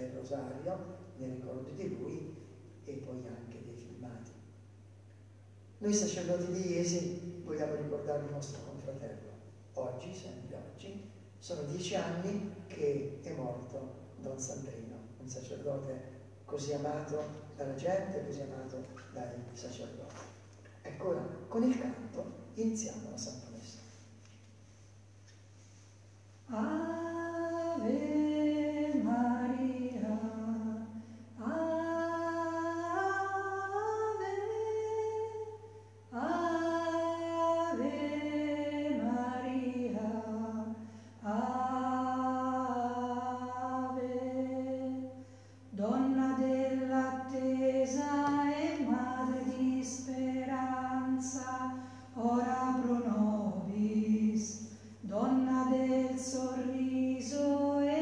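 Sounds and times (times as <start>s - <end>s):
faint low hum: 0.0s - 58.0s
person singing unaccompanied hymn: 26.5s - 58.0s.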